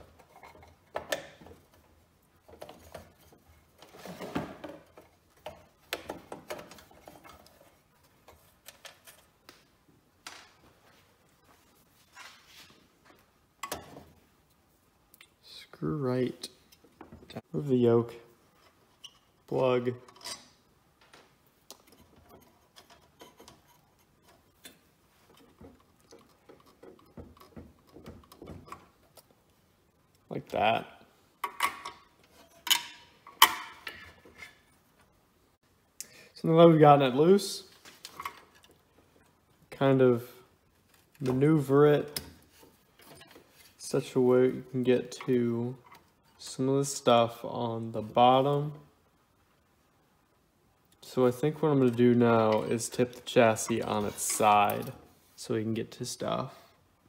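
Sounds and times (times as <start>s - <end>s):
small metallic clicks and knocks: 21.7s - 29.3s.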